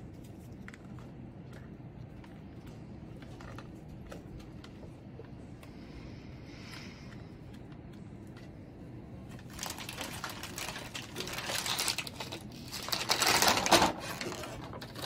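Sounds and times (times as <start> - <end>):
plastic bags crinkling: 9.3 - 15.0.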